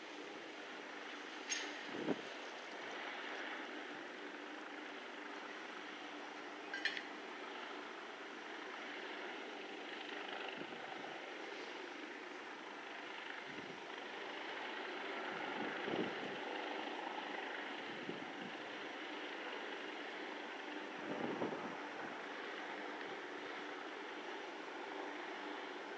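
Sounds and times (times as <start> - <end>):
distant mechanical drone: 0.0 - 25.9
wind buffeting microphone: 1.9 - 2.3, 21.0 - 21.8.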